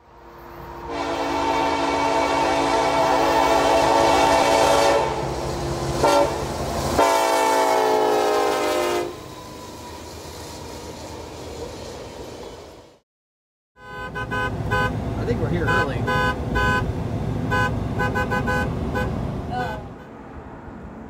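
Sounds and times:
freight train rumbling: 0.0 - 13.0, 14.2 - 21.0
locomotive air horn: 0.6 - 9.3, 13.8 - 15.0, 15.6 - 16.9, 17.5 - 19.2.

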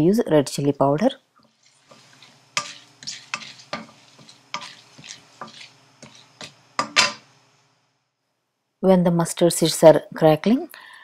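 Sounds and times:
faint steady hum: 0.0 - 11.0
seeds popping in hot oil: 1.4 - 7.3.

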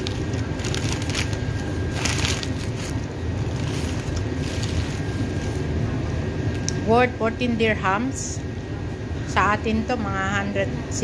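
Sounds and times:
plastic packaging crinkling: 0.0 - 5.8
steady low hum: 0.0 - 11.0.

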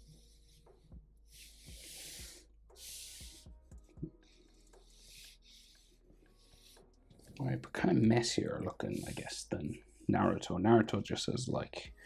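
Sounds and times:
marker scratching on paper: 0.0 - 3.5, 4.2 - 7.3, 8.6 - 10.1.

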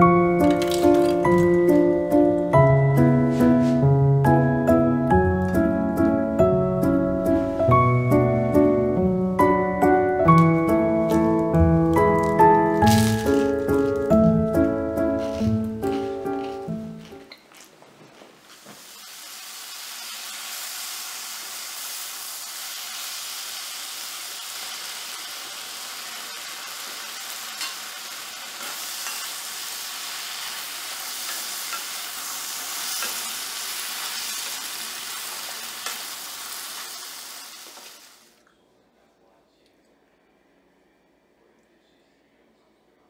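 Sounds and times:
noodles sizzling in a pan: 12.2 - 14.1, 18.4 - 38.4.

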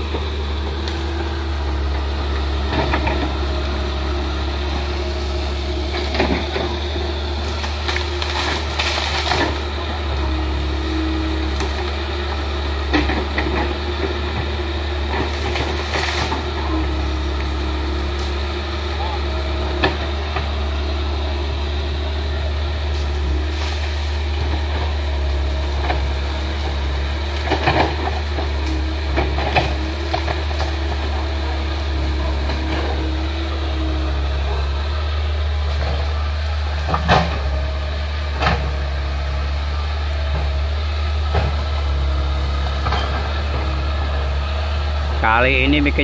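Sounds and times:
excavator diesel engine humming: 0.0 - 46.0
sharp cracks and knocks: 7.4 - 9.7.

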